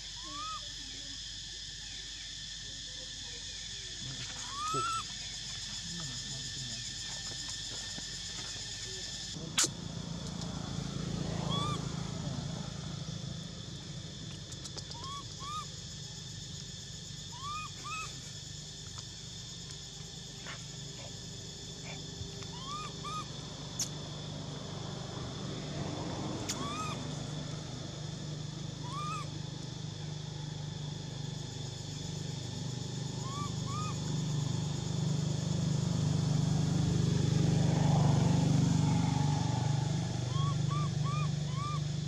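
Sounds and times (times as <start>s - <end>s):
rising and falling chirping calls: 4.4s - 5.2s, 22.5s - 23.9s, 26.5s - 27.0s.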